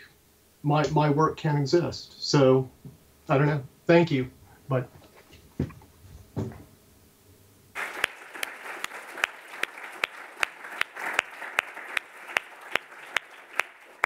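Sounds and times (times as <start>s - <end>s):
audience applauding: 7.8s - 14.0s
person clapping evenly: 7.8s - 14.0s.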